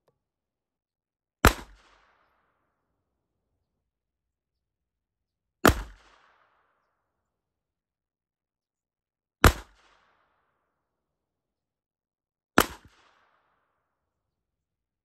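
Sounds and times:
pistol shots with echo: 1.4s - 2.3s, 5.6s - 6.6s, 9.4s - 10.2s.

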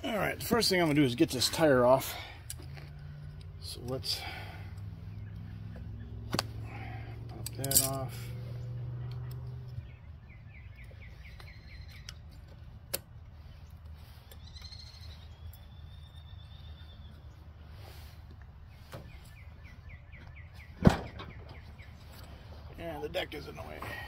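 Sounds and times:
birds chirping: 0.0s - 24.0s
bird trill: 9.3s - 12.4s, 14.2s - 17.4s.

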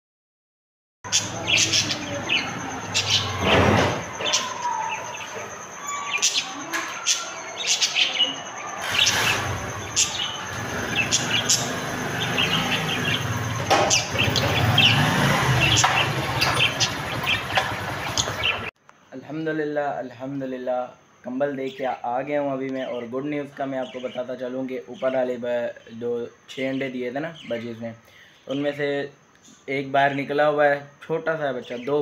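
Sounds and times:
small birds chirping: 1.1s - 18.8s, 21.5s - 30.4s
low engine rumble: 8.8s - 18.7s.

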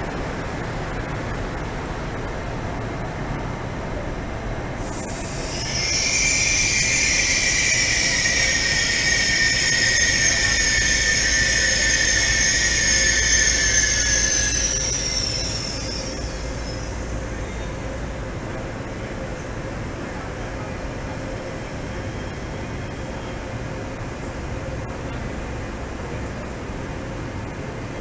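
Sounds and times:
train wheels squealing on rails: 4.8s - 26.5s.

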